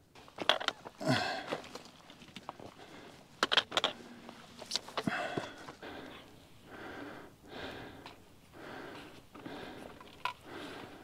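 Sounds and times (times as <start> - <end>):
heavy breathing: 1.0 - 1.8, 2.6 - 3.3, 5.0 - 11.0.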